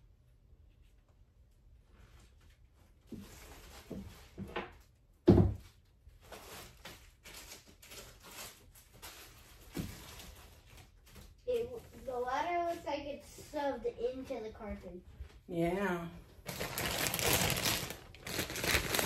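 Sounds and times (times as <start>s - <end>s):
plastic bags rustling: 5.7s - 13.2s, 16.3s - 19.0s.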